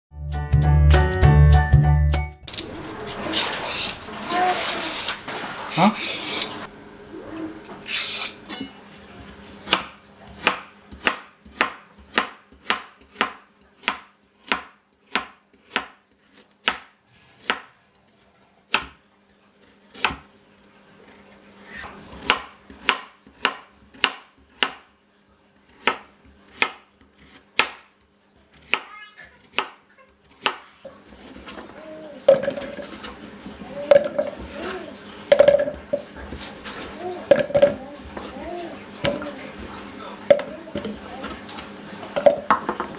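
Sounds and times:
knife slicing carrot on board: 9.7 - 17.7.

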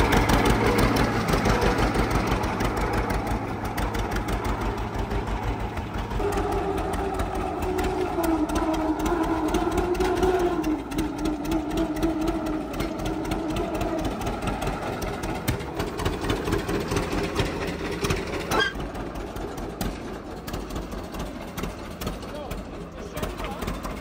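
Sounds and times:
engine running steadily: 0.0 - 24.0.

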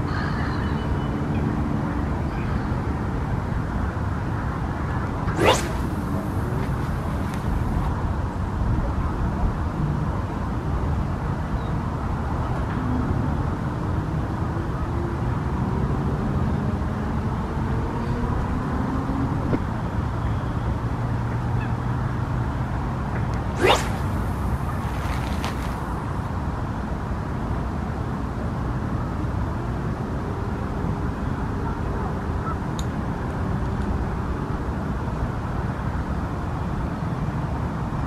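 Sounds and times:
faint gliding tones: 5.3 - 7.9, 23.4 - 26.0
fishing rod cast swish: 5.3 - 7.9, 23.4 - 26.0.

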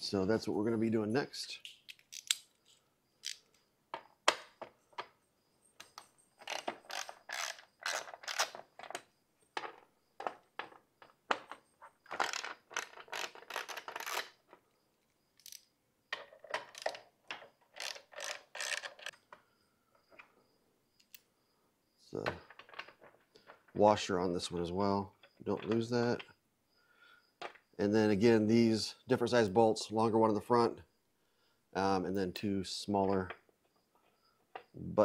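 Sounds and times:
hand ratchet clicking: 3.2 - 3.5, 6.4 - 8.6, 17.7 - 19.2.

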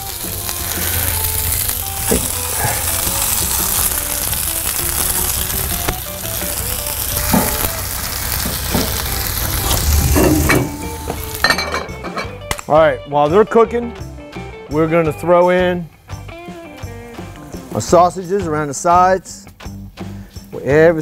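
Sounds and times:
vegetables sizzling in oil: 0.0 - 12.4
vegetables knocking in pan: 2.0 - 2.4, 7.1 - 12.6.

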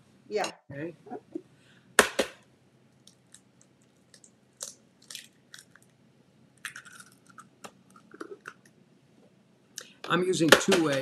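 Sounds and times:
eggshell crackling: 2.9 - 8.8
egg cracking against bowl rim: 6.6 - 8.7.

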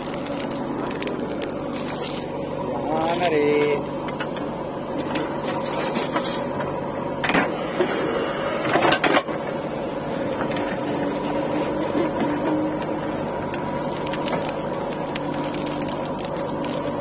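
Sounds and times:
bucket scraping dirt: 0.0 - 3.9
diesel engine running: 0.0 - 17.0.

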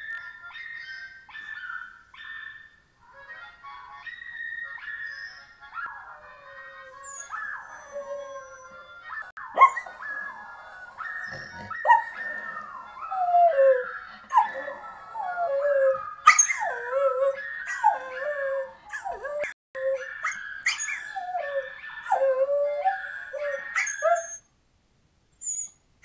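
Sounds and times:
dog howling and yelping: 4.1 - 24.4.

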